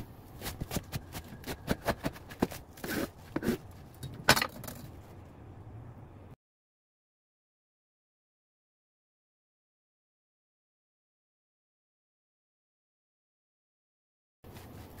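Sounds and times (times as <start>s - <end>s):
knife cutting through cabbage: 0.4s - 3.8s.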